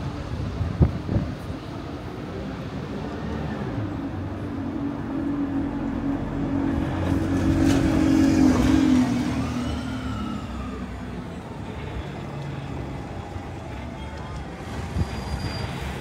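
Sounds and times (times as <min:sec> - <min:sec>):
background traffic: 0:00.0 - 0:16.0
vehicle passing by: 0:02.7 - 0:11.2.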